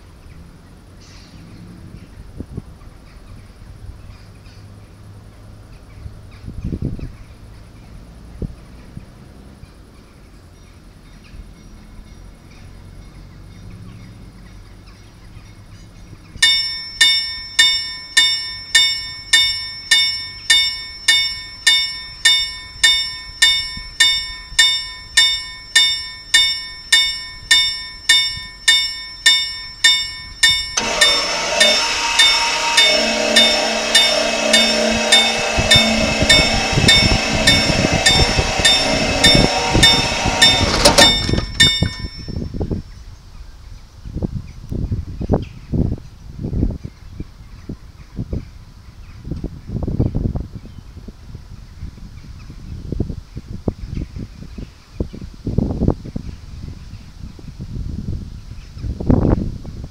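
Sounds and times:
mechanical level-crossing bell ringing: 0:16.4 - 0:42.6
low rumble: 0:27.1 - 0:42.7.

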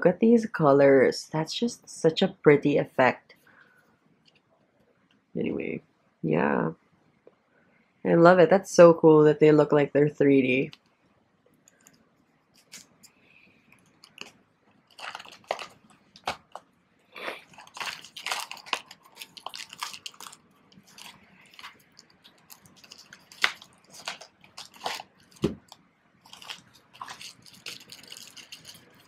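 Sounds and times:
plastic mailer crinkling: 0:13.7 - 0:16.7, 0:17.4 - 0:29.0.

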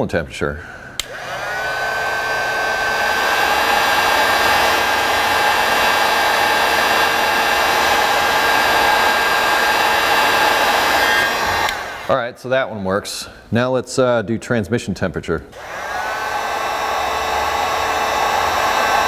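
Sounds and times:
heat gun blowing hiss and whine: 0:01.0 - 0:12.2, 0:15.5 - 0:19.0.

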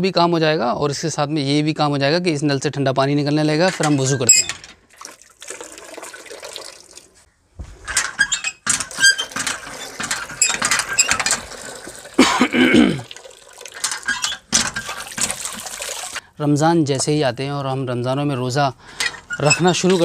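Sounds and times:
hand pump knocking and squeaking: 0:03.6 - 0:04.8, 0:07.9 - 0:12.2, 0:13.7 - 0:16.1, 0:19.0 - 0:20.0
water gushing into a bucket: 0:04.9 - 0:07.2, 0:08.9 - 0:16.2.

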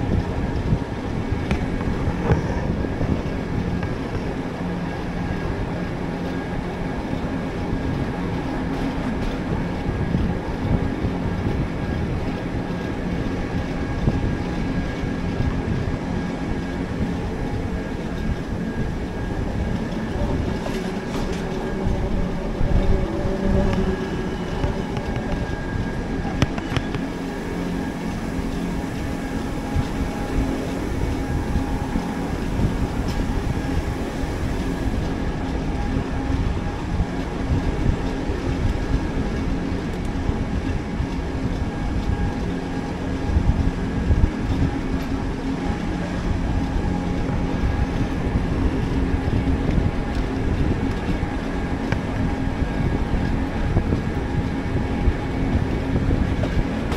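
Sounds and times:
faint steady whine: 0:00.0 - 0:56.9
train wheels rumbling on track: 0:00.0 - 0:56.9.

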